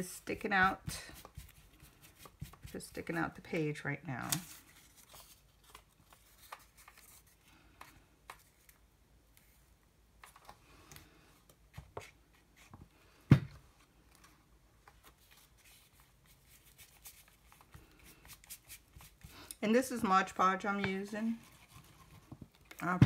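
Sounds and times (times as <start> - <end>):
paper rustling: 4.2 - 8.8, 14.1 - 19.4.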